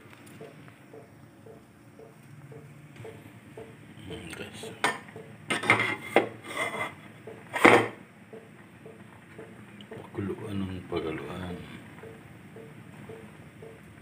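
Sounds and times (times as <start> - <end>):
metal cookware clattering: 4.8 - 6.9.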